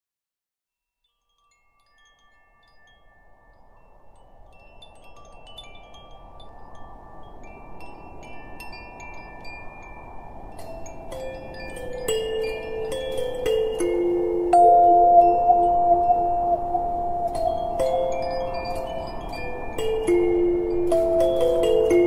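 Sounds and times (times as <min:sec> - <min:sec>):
wind chimes tinkling: 0:01.0 - 0:22.0
soft rushing wash: 0:11.0 - 0:22.0.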